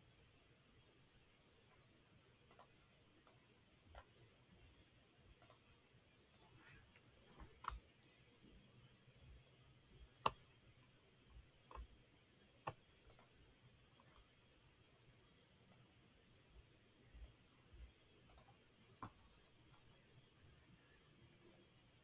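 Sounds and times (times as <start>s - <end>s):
computer mouse clicking: 2.5s - 4.1s, 5.4s - 5.6s, 6.3s - 6.6s, 7.4s - 7.9s, 10.2s - 10.5s, 11.3s - 11.9s, 12.6s - 13.3s, 18.3s - 19.2s.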